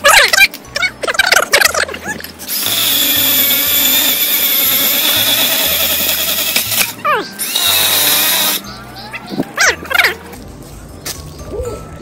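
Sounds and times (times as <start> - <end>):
electric chainsaw cutting bamboo: 2.5 - 8.6.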